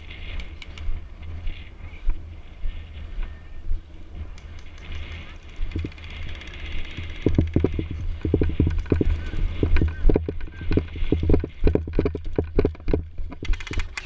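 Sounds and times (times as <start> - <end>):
running footsteps on grass: 0.0 - 13.6.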